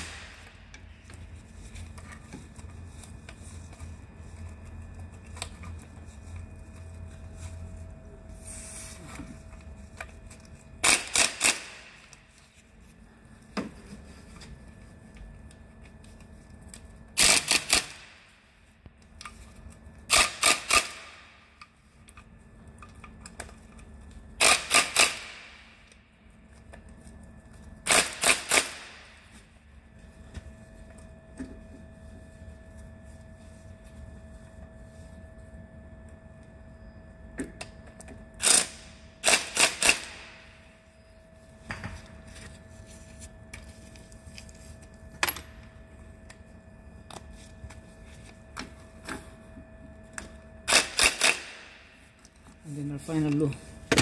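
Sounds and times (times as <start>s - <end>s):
ratchet wrench clicking: 10.8s - 11.7s, 17.2s - 18.0s, 20.1s - 21.1s, 24.4s - 25.4s, 38.4s - 40.2s, 50.7s - 51.5s.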